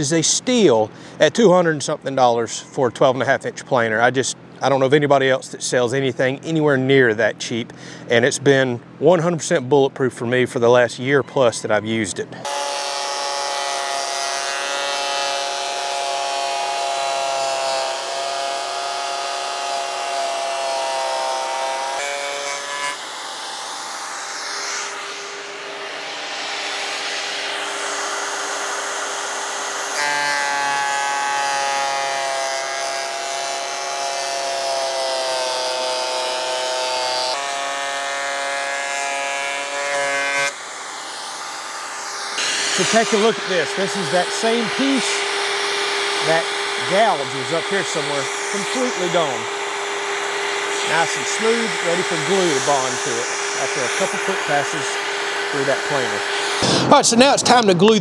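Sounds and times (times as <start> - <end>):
thickness planer motor whine: 11.0 - 57.9
planer cutting board: 12.4 - 57.9.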